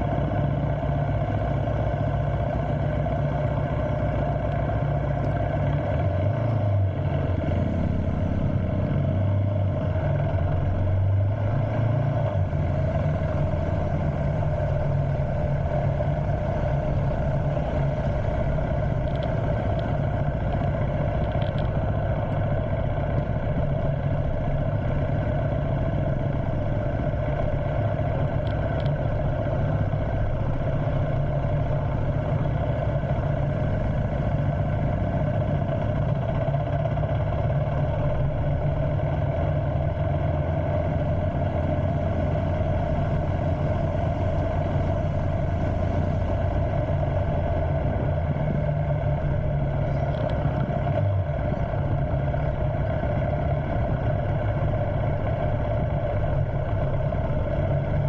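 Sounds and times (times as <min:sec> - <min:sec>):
motorcycle engine running: 0:00.0 - 0:58.0.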